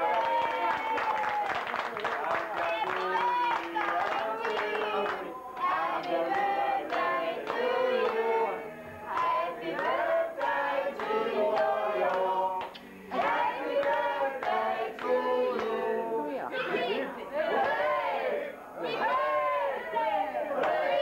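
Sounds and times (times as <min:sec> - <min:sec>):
hand clapping: 0:00.1 - 0:08.2
people singing together: 0:02.0 - 0:21.0.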